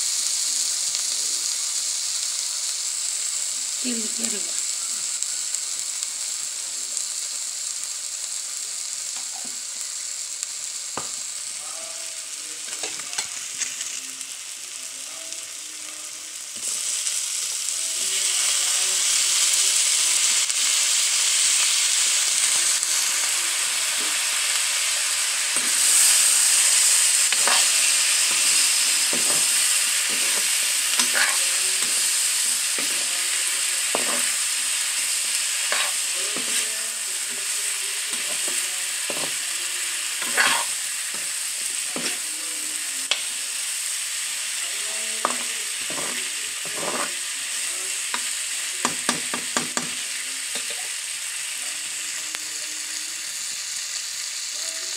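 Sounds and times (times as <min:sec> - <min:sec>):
food sizzling in a wok: 0:00.0 - 0:54.9
meat hissing in hot oil: 0:00.0 - 0:54.9
spatula scraping a pan: 0:25.6 - 0:32.2, 0:35.6 - 0:36.6, 0:40.2 - 0:40.8, 0:45.2 - 0:47.2.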